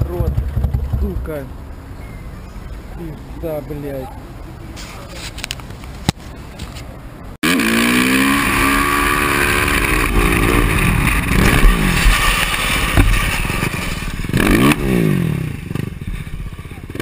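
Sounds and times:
dirt bike engine revving: 7.4s - 17.0s.

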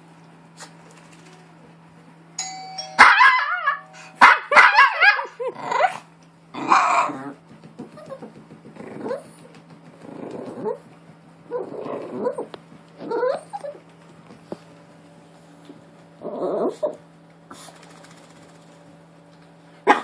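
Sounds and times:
doorbell chime from phone: 2.4s - 4.2s
small dog barking: 3.0s - 6.0s.

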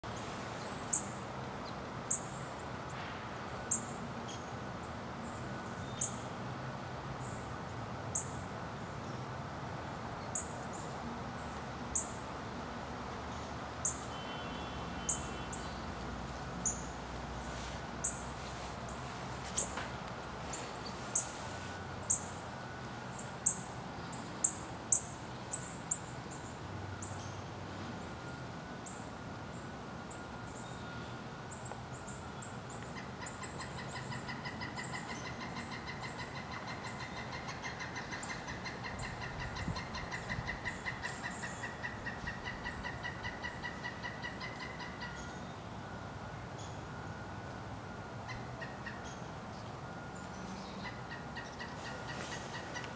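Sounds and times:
woodpecker calling: 32.8s - 45.4s, 48.2s - 52.9s.

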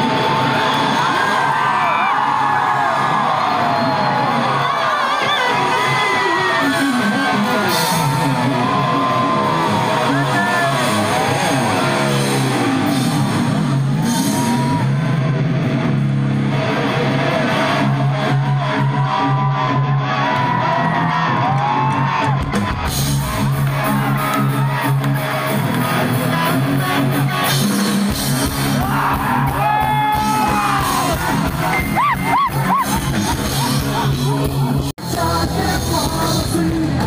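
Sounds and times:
live rock band playing: 0.0s - 37.0s
person whooping and yelling: 28.8s - 34.8s.

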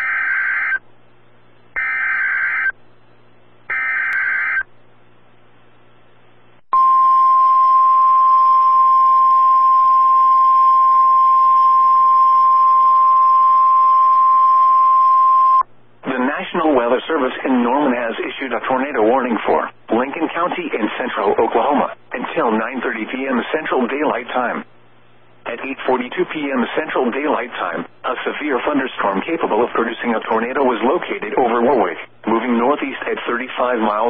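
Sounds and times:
steady warning alarm tone: 0.0s - 0.8s, 1.8s - 2.8s, 3.7s - 4.6s, 6.8s - 15.6s.

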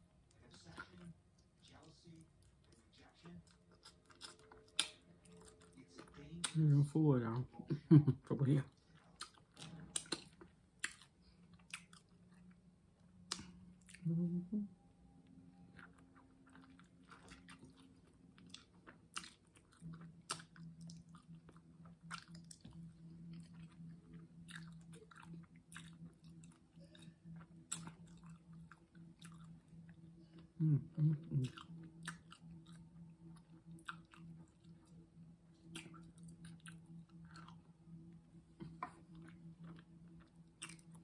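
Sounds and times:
chewing and biting food: 0.3s - 6.8s, 8.7s - 12.6s, 15.7s - 37.7s, 38.6s - 41.0s
brief hum of voice: 14.0s - 14.7s, 30.6s - 31.4s.

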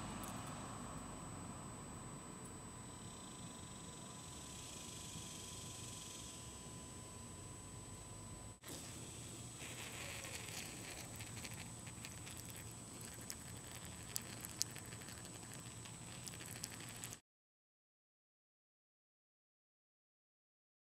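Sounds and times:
urine stream pattering on cloth: 9.6s - 17.2s
drops ticking: 10.6s - 17.2s.

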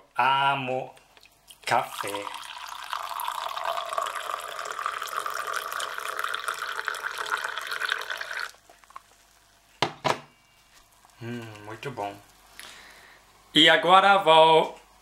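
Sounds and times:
coffee pouring into mug: 1.2s - 9.1s.

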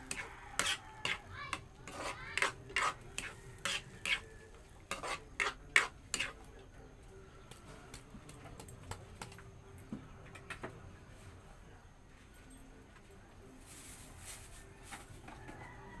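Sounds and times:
metal spoon scraping a pan: 0.0s - 6.5s.

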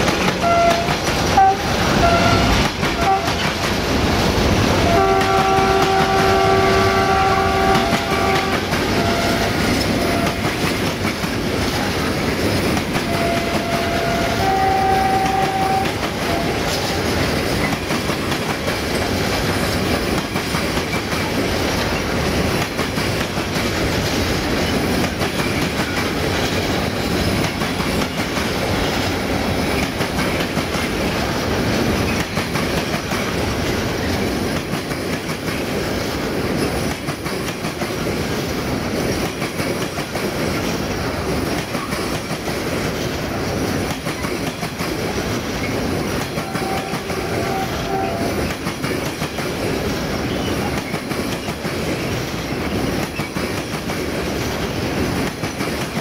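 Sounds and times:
freight train rumbling: 0.0s - 56.0s
locomotive horn: 0.4s - 3.4s, 4.8s - 10.6s, 13.0s - 16.7s, 46.4s - 48.4s.

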